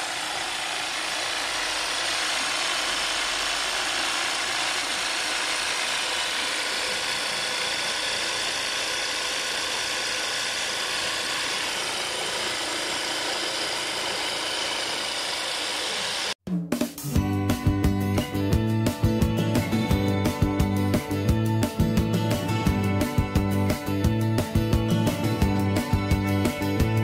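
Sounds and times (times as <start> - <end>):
water pump running: 0.0 - 16.4.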